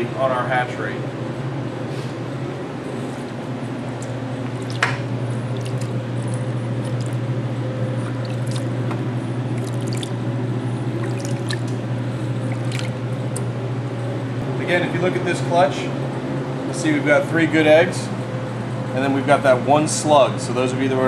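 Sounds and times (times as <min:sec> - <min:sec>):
steady low hum: 0:00.0 - 0:21.0
water sloshing and dripping: 0:03.2 - 0:07.3, 0:08.0 - 0:08.9, 0:09.5 - 0:10.3, 0:11.0 - 0:13.5.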